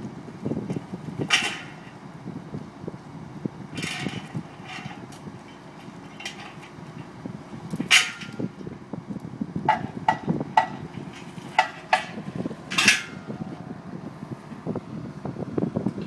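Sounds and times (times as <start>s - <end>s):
low steady rumble: 0.0s - 16.0s
metal stands clinking: 7.7s - 8.5s, 9.7s - 13.4s.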